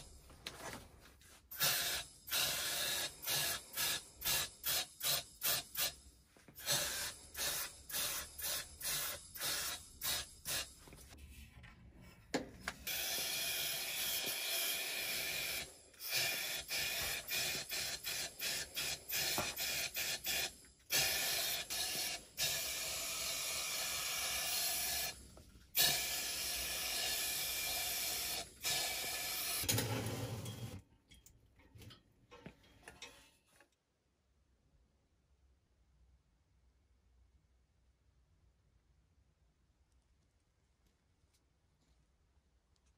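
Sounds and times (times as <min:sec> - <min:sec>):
paint spray gun hissing: 0:01.5 - 0:06.0, 0:06.6 - 0:10.8, 0:12.8 - 0:25.2, 0:25.8 - 0:29.7.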